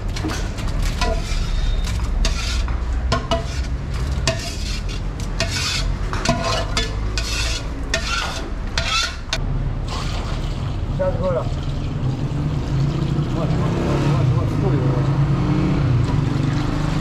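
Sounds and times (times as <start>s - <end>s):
metal ladle scraping pot: 0.0s - 9.4s.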